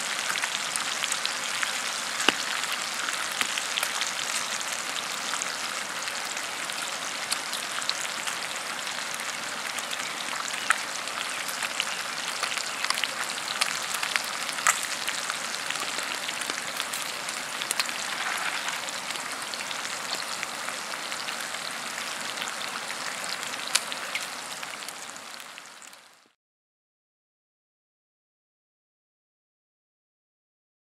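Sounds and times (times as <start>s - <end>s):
bacon sizzling: 0.0s - 26.2s
grease popping and crackling: 0.2s - 5.4s, 9.7s - 21.4s, 23.3s - 25.0s.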